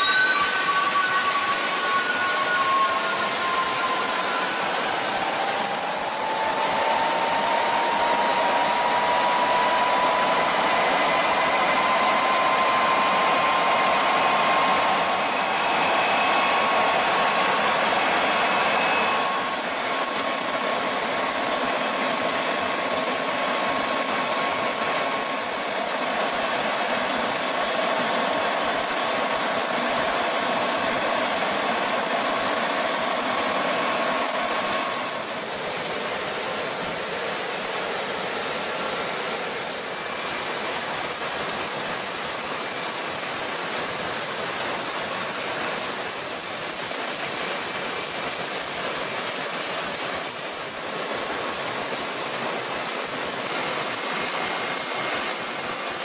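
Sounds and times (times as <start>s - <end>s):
jet engine whine: 0.0s - 56.0s.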